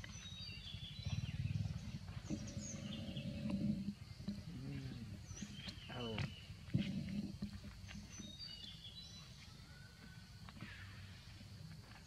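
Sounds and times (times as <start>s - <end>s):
low steady rumble: 0.0s - 8.5s
birds chirping: 0.0s - 12.0s.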